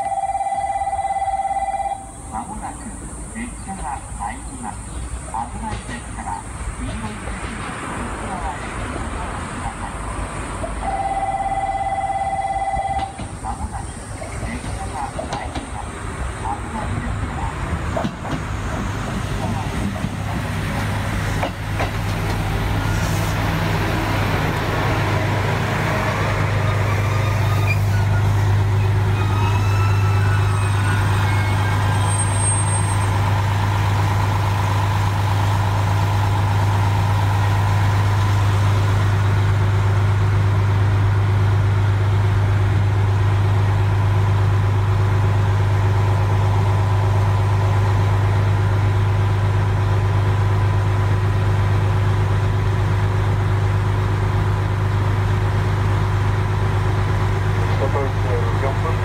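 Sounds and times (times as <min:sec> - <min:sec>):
faint squealing glides: 0:26.6 - 0:33.3
diesel engine idling: 0:33.1 - 0:59.0.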